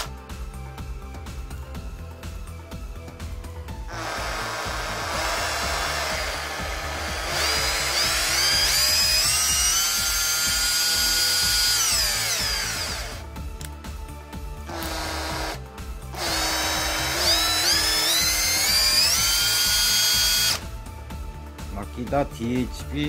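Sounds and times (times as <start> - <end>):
cordless drill motor whine: 3.9 - 13.2, 14.7 - 20.7.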